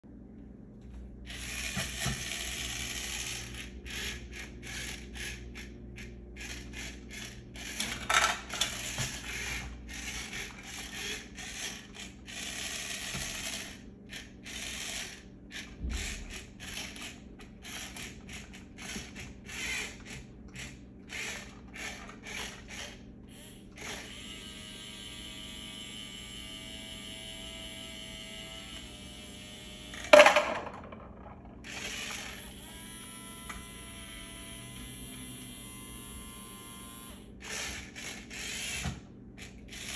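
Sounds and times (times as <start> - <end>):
toy electric motors whirring: 1.3 - 39.9.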